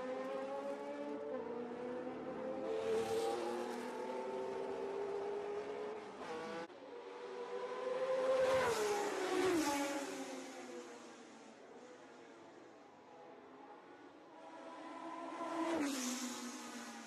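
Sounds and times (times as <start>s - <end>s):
racing car engines at high revs: 0.0s - 10.7s.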